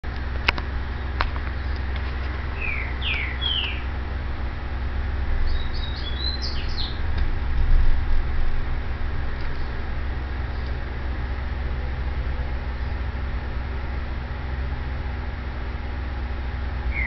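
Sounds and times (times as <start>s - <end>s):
steady low rumble: 0.0s - 17.0s
small bird chirping: 1.0s - 3.9s, 5.5s - 7.0s.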